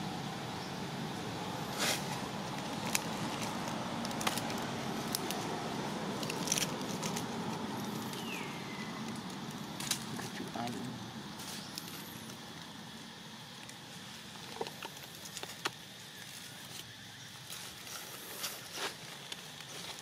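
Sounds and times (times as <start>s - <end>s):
outdoor hiss: 0.0s - 20.0s
dry leaves crackling and rustling: 1.5s - 20.0s.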